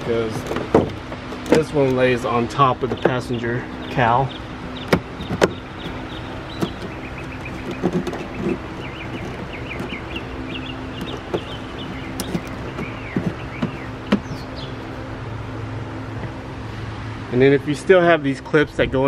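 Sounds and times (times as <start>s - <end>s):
bird chirping: 0.0s - 15.1s
steady low hum: 0.0s - 19.0s.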